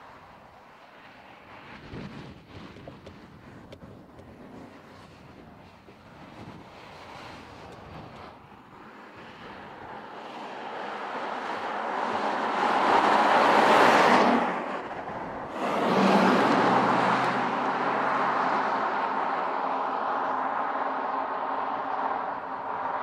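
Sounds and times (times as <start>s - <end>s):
car driving past: 9.5s - 23.0s.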